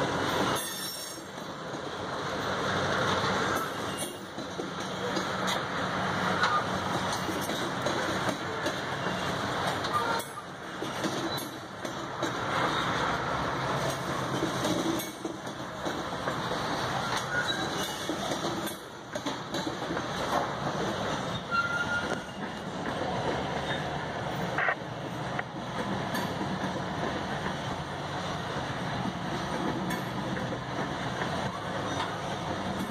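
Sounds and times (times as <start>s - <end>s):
train wheels clattering on rail: 0.0s - 32.9s
high wheel squeal: 0.4s - 1.3s, 3.5s - 4.3s, 17.0s - 18.3s, 21.2s - 22.6s, 23.6s - 24.0s.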